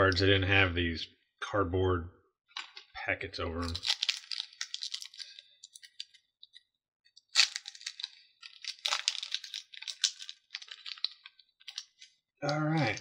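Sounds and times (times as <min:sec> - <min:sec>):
packaging crinkling and tearing: 0:03.6 - 0:06.2, 0:07.2 - 0:13.0.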